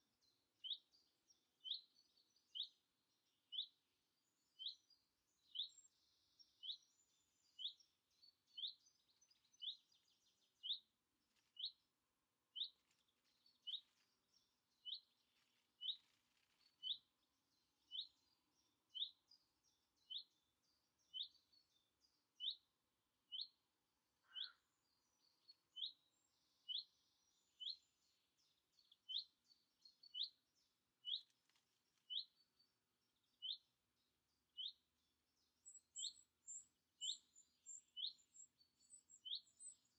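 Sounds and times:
birds twittering: 12.5 - 22.6, 24.2 - 31.3, 35.5 - 39.9.

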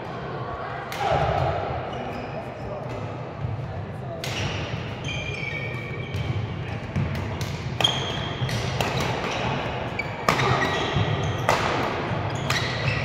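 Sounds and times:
shoes squeaking on court floor: 4.4 - 13.0
rackets striking shuttlecock: 6.1 - 13.0.

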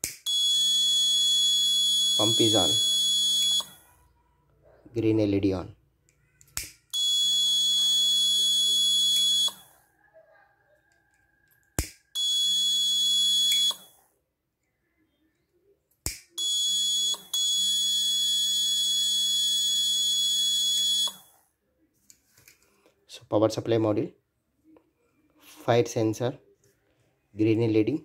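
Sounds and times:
buzzer high tone: 0.3 - 3.8, 7.0 - 9.6.

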